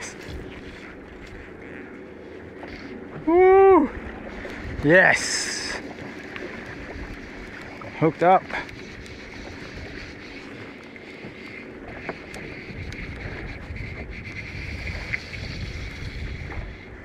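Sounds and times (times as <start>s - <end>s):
wind buffeting microphone: 3.0s - 17.0s
faint ticks: 8.5s - 13.4s.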